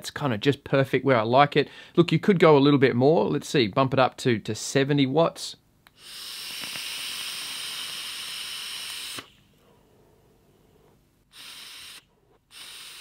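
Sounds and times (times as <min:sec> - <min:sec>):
faint exhale: 0:01.7 - 0:02.0, 0:06.0 - 0:13.0
vape atomizer airy hiss: 0:05.9 - 0:09.5, 0:11.2 - 0:13.0.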